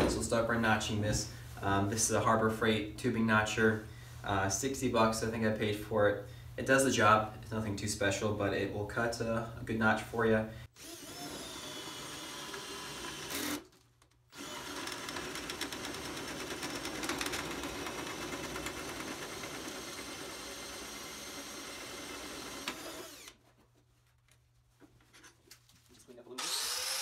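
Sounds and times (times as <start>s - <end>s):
drill hole saw cutting metal pipe: 10.8s - 13.6s, 14.4s - 15.9s, 19.1s - 23.3s, 26.4s - 27.0s.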